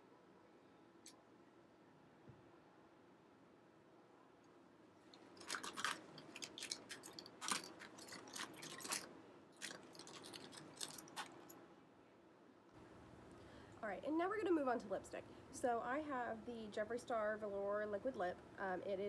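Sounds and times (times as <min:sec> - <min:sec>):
handling clicks and crackles: 0:05.1 - 0:11.6.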